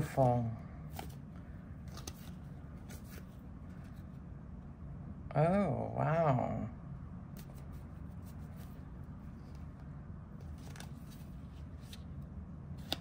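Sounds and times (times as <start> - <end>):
low steady hum: 0.0 - 13.0
cards sliding in hands: 0.9 - 4.2, 10.4 - 12.2, 12.8 - 13.0.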